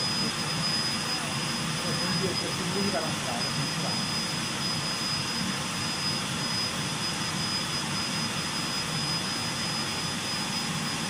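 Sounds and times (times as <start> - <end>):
high-pitched whine: 0.0 - 11.0.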